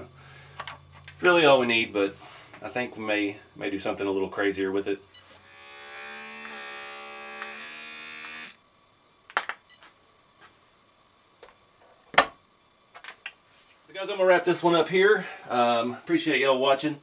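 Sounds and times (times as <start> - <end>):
small electric air pump buzzing: 5.2 - 8.6.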